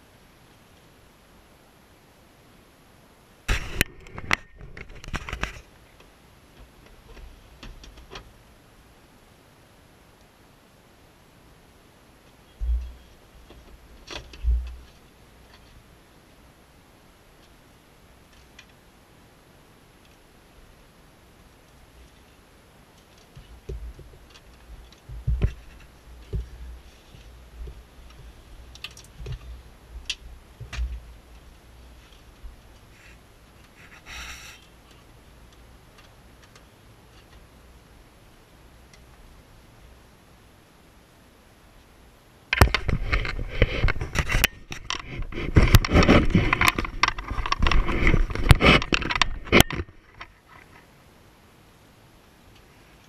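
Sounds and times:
plastic trim scraping and knocking: 0:23.4 - 0:26.6, 0:42.6 - 0:50.0.

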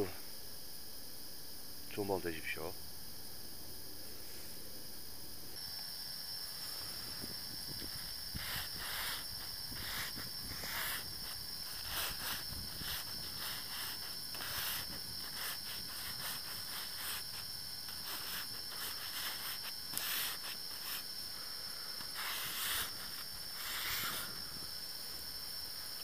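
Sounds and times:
steady high hiss: 0:00.0 - 0:26.0
fingertip rubbing on tent fabric: 0:07.8 - 0:21.2, 0:22.0 - 0:24.4.

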